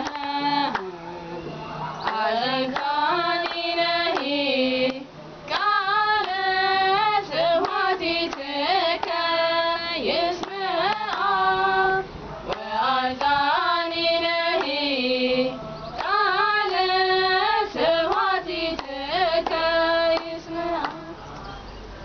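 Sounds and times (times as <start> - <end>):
hand claps: 0.0 - 1.0, 2.0 - 6.5, 7.6 - 9.4, 10.4 - 11.4, 12.5 - 13.4, 14.5 - 14.8, 16.0 - 16.2, 18.1 - 21.1
women singing a hymn unaccompanied: 0.0 - 21.3.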